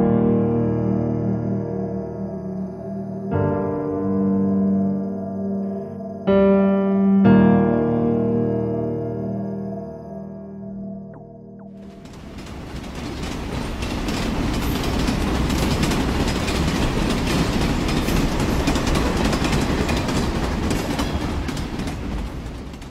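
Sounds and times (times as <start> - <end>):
train rumbling on rails: 11.7 - 22.9
wheels clickety-clack: 11.8 - 22.9.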